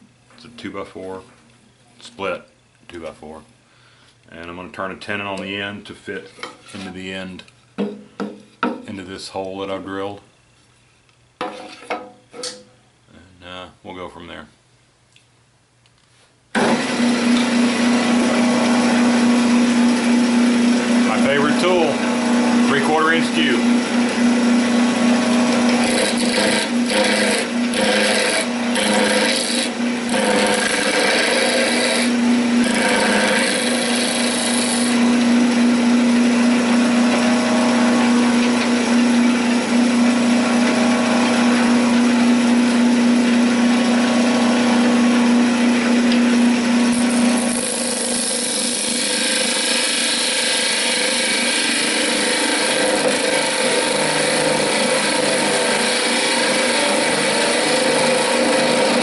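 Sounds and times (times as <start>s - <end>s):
turning tool shaving wood: 16.6s - 59.0s
wood lathe hum: 16.6s - 59.0s.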